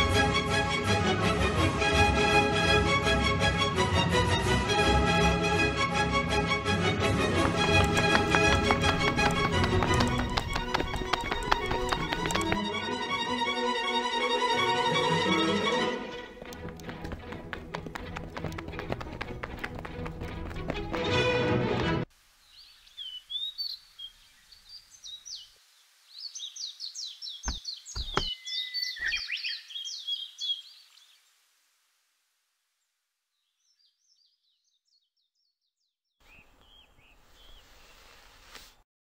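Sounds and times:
small birds singing: 7.5s - 12.6s, 22.4s - 31.3s, 33.3s - 38.1s
faint hiss: 22.1s - 27.9s, 30.3s - 33.2s
sharp knocks: 27.5s - 28.4s.

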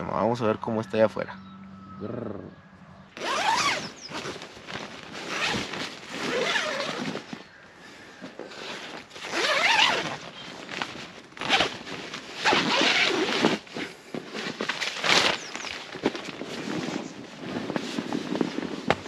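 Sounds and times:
tent zipper being pulled: 3.2s - 7.4s, 8.4s - 19.0s.

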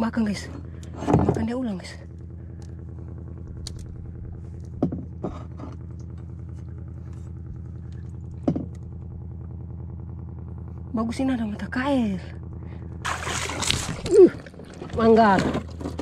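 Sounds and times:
engine idling: 0.0s - 16.0s
knocks against a boat: 4.8s - 5.4s, 8.4s - 8.8s.

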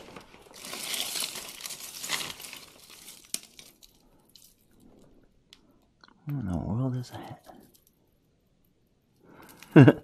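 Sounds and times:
wrapping crinkling: 0.0s - 5.6s.

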